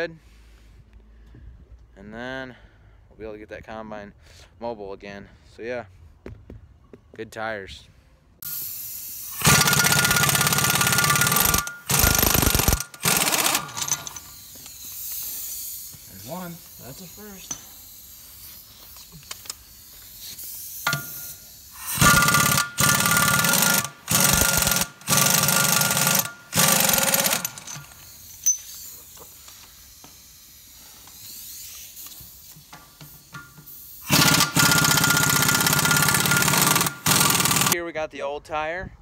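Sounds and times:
impact wrench hammering: 9.2 - 14.9, 20.8 - 28.8, 32.0 - 37.8.

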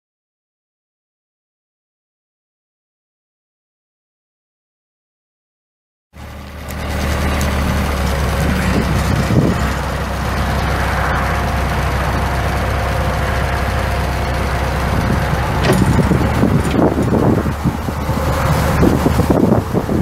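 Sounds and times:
diesel engine running steadily: 6.2 - 20.0.

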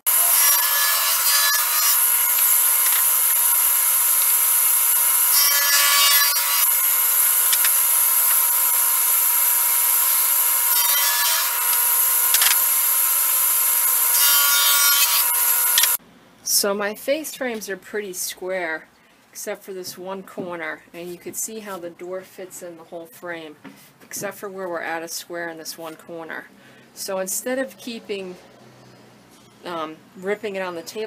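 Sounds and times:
table saw whining: 0.0 - 16.0.

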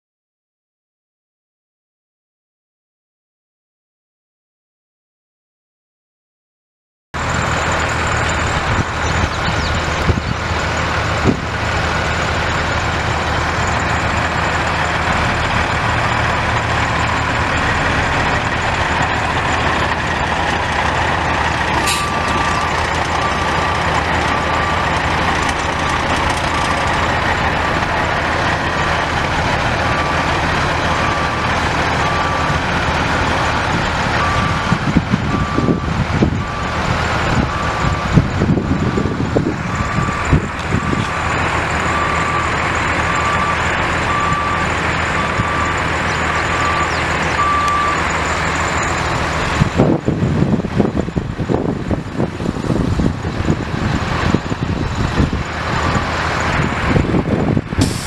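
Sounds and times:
truck diesel engine running: 7.2 - 58.0
backup alarm beeping: 34.2 - 36.8, 41.8 - 49.0.

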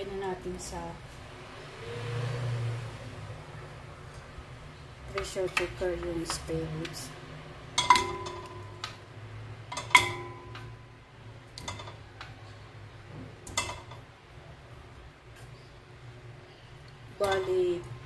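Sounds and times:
low steady hum: 2.5 - 18.0
meat clanking into metal pot: 7.7 - 9.0.

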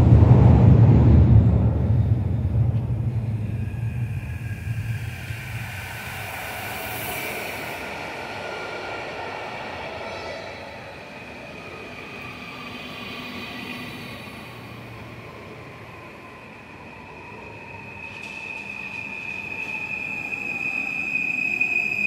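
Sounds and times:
train wheels rumbling: 0.0 - 16.0.

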